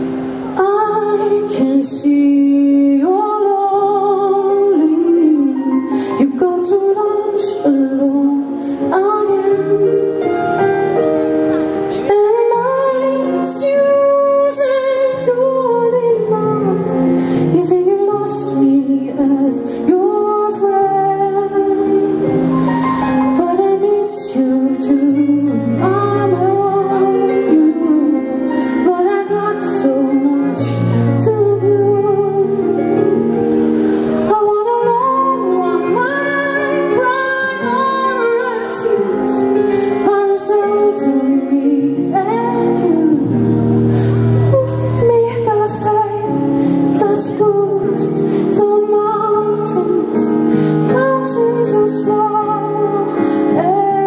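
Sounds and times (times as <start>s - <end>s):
woman singing pop song: 0.5s - 10.6s, 12.0s - 54.0s.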